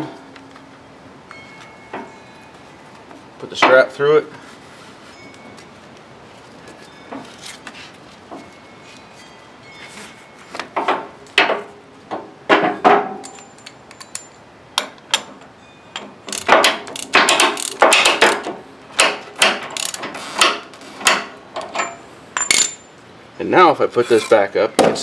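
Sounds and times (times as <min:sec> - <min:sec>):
ratchet strap clicking: 0:16.3 - 0:20.6.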